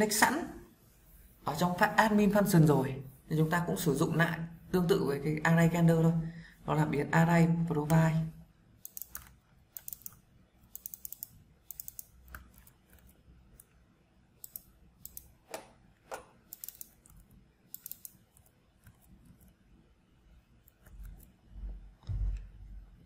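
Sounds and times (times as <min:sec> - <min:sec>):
computer keyboard typing: 0:08.8 - 0:13.8, 0:14.4 - 0:15.4, 0:16.0 - 0:19.6.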